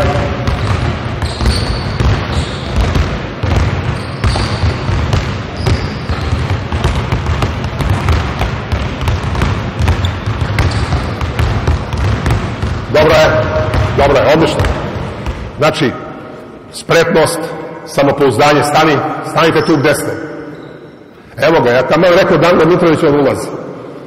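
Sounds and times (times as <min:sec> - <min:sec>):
basketballs bouncing on hardwood: 0:00.0 - 0:15.6.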